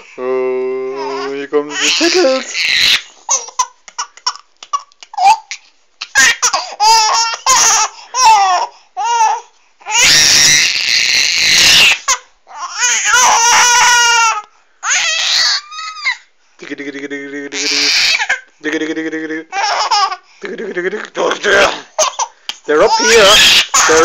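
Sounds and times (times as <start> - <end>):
baby laughing: 1.0 - 10.2, 17.5 - 24.0.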